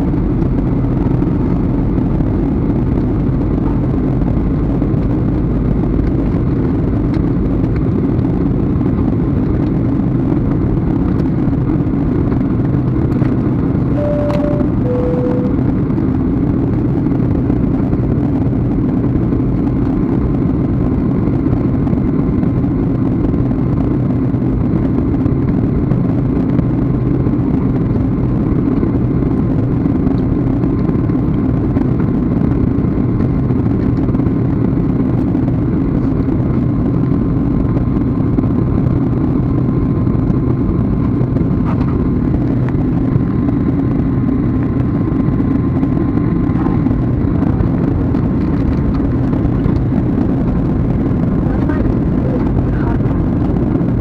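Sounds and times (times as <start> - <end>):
jet engines and rushing air: 0.0 - 54.0
faint steady whine: 13.8 - 17.6.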